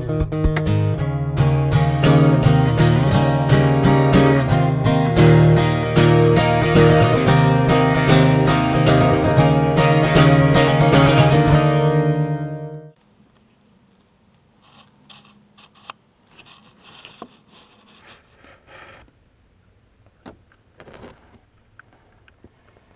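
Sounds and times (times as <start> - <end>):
strummed acoustic guitar: 0.0 - 13.0.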